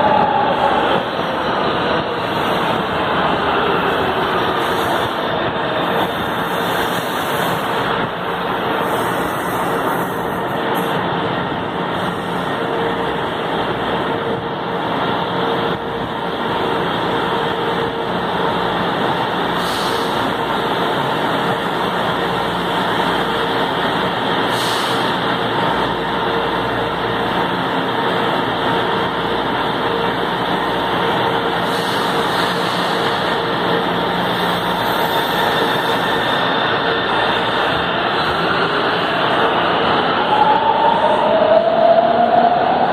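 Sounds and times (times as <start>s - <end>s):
train wheels rumbling on rails: 0.0s - 42.9s.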